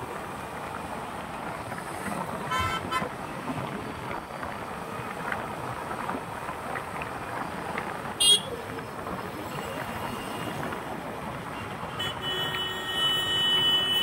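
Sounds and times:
road traffic: 0:00.0 - 0:14.0
vehicle horn honking: 0:02.5 - 0:03.1, 0:08.2 - 0:08.5, 0:11.9 - 0:14.0.

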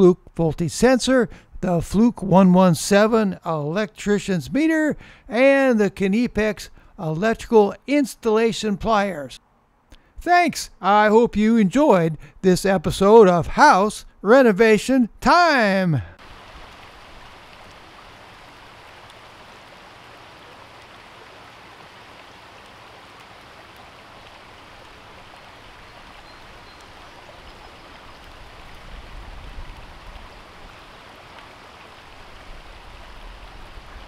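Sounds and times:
stream running over stones: 0:15.4 - 0:34.0.

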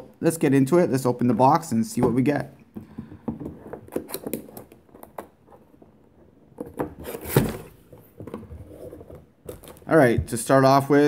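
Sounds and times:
cardboard rustling: 0:03.5 - 0:10.2.

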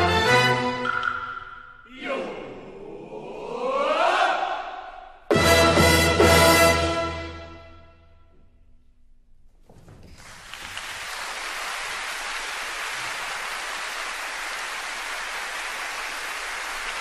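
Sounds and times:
audience applause: 0:10.2 - 0:17.0.

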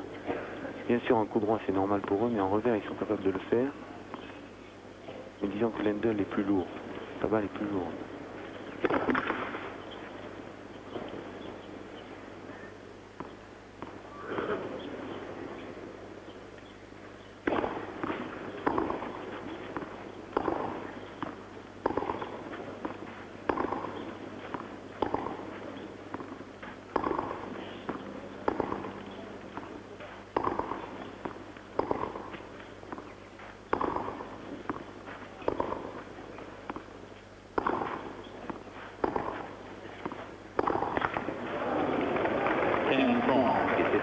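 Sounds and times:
racket striking tennis ball: 0:08.8 - 0:09.7, 0:17.4 - 0:36.9, 0:37.5 - 0:41.3.

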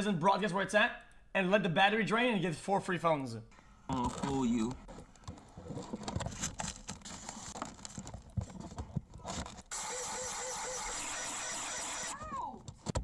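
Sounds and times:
plastic packaging crinkling: 0:03.9 - 0:09.7.

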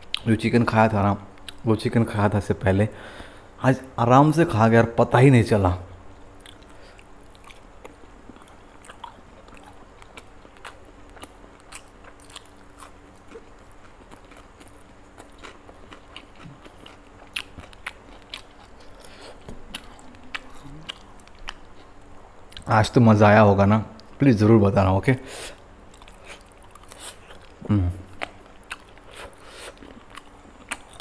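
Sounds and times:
man chewing and crunching food: 0:01.3 - 0:01.6, 0:06.0 - 0:22.8, 0:25.4 - 0:31.0.

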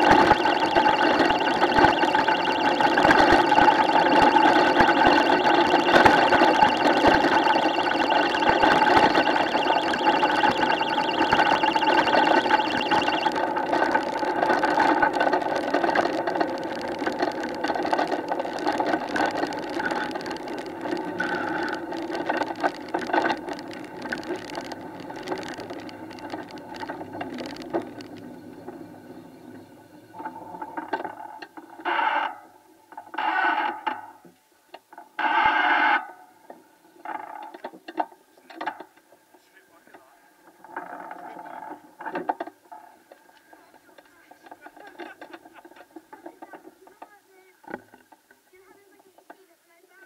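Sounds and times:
wheels rolling on tarmac: 0:13.4 - 0:31.3.

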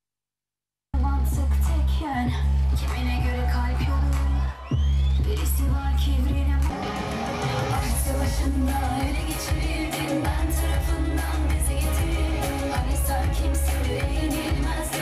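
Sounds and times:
heavy bass: 0:01.0 - 0:15.0
woman singing: 0:01.0 - 0:15.0
drum beat: 0:06.8 - 0:15.0.

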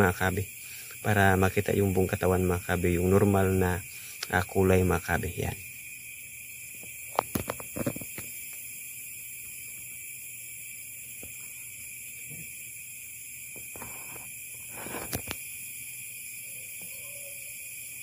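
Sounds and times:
night insects chorus: 0:00.0 - 0:18.0
sharp knocks and rustles: 0:06.8 - 0:08.4.

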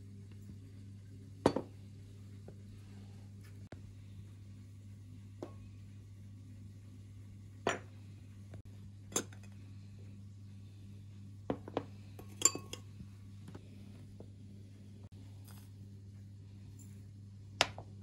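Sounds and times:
faint low hum: 0:00.0 - 0:18.0
teaspoon clinking on glass jars: 0:12.2 - 0:12.9.

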